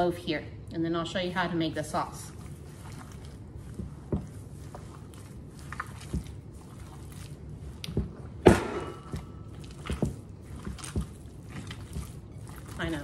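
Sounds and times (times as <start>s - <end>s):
hands squelching meat mixture: 1.2s - 13.0s.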